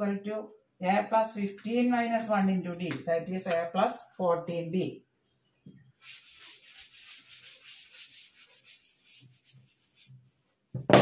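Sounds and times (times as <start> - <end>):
duster wiping chalkboard: 5.9 - 10.7.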